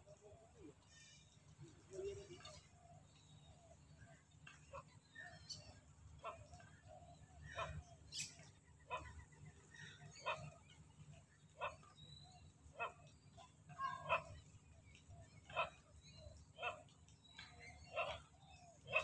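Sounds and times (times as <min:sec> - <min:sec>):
animal calling: 0:17.6 - 0:19.0.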